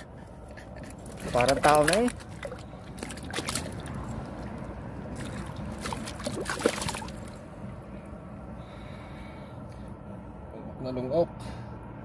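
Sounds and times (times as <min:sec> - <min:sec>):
sea water sloshing against rocks: 0:00.9 - 0:07.4.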